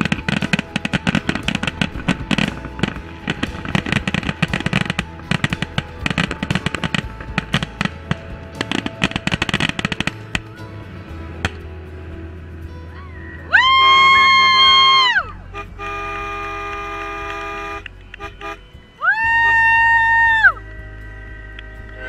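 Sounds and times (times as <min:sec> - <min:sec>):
fireworks bursting and crackling: 0:00.0 - 0:11.6
music: 0:00.0 - 0:22.0.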